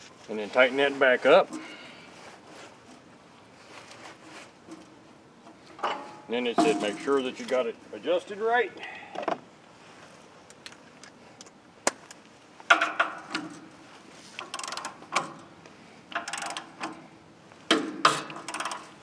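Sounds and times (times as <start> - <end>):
metallic clicking and rattling: 14.4 - 15.5, 16.1 - 17.0, 17.7 - 19.0.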